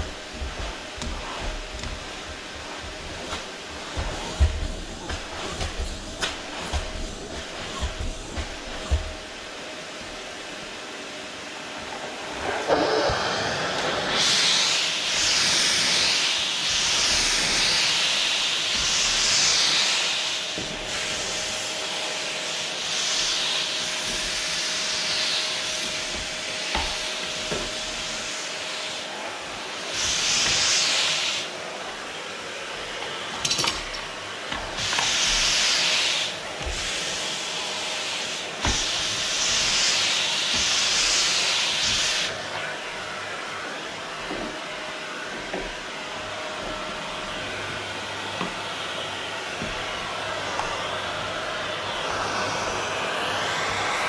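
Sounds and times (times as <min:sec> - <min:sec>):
vacuum cleaner running: 0:00.0 - 0:54.0.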